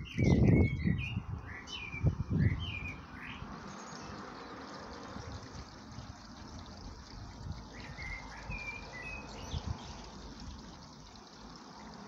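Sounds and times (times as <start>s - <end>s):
blackbird singing: 0.0s - 6.4s, 7.5s - 10.3s.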